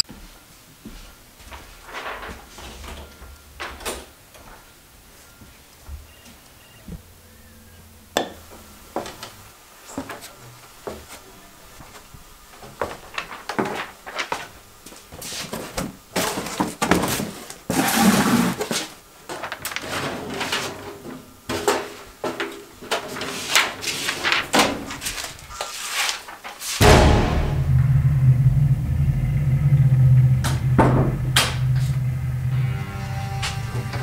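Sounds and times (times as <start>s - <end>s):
paper handling: 13.0s - 14.6s, 23.2s - 26.8s
knocks and thuds: 26.8s - 32.1s
loud low rumble: 26.8s - 34.0s.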